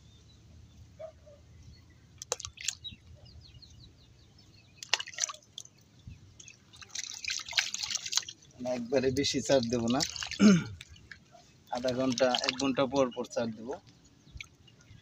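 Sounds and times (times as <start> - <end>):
small water splashes: 2.1 - 3.2, 4.6 - 15.0.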